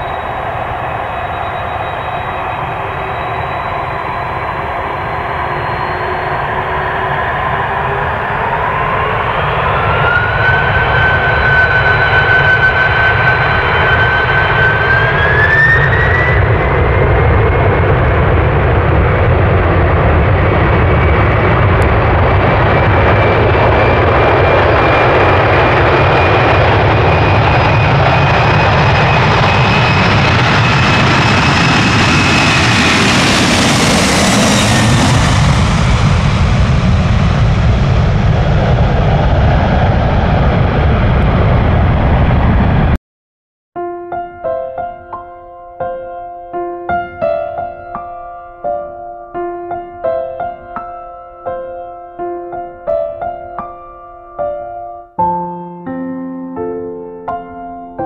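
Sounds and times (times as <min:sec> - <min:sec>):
jet engine whine: 0:00.0 - 0:43.0
jet engines roaring on takeoff: 0:00.0 - 0:43.0.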